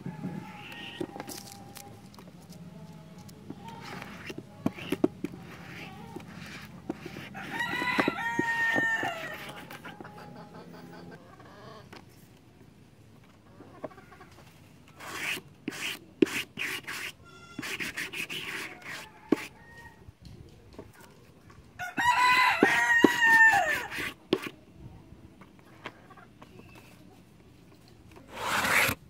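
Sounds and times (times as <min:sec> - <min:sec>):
brush strokes: 0:03.2 - 0:10.1, 0:15.0 - 0:19.6, 0:22.6 - 0:24.5, 0:28.3 - 0:29.0
rooster crowing: 0:07.4 - 0:09.6, 0:21.8 - 0:24.0.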